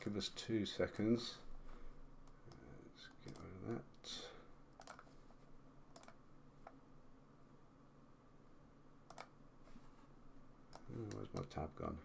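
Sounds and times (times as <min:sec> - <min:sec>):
computer mouse clicks: 0:02.2 - 0:03.5, 0:04.8 - 0:05.1, 0:05.9 - 0:06.8, 0:09.1 - 0:09.4, 0:10.7 - 0:11.5.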